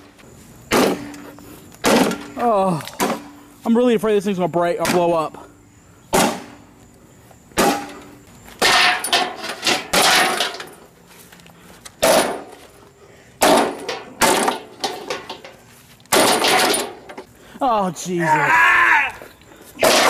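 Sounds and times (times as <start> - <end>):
blows crashing against lawnmower: 0.7 - 3.4, 6.1 - 6.7, 7.5 - 10.9, 12.0 - 12.8, 13.4 - 17.3, 19.8 - 20.0.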